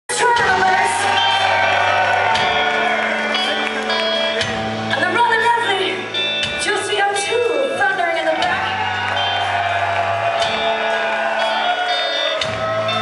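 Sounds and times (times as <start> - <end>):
rock band playing: 0.1 - 13.0.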